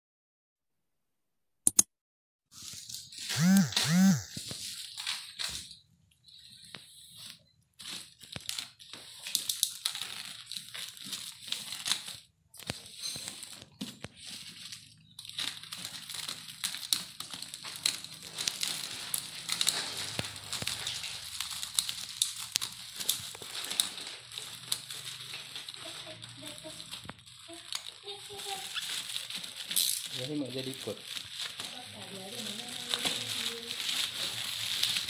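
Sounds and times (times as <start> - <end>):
plastic wrapping crinkling: 2.6 - 35.0
sharp little clicks: 3.3 - 4.4.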